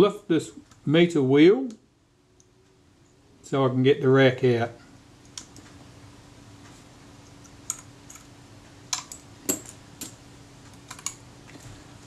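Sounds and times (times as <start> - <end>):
faint steady hum: 0.0 - 12.0
small metal parts clicking: 8.9 - 11.2.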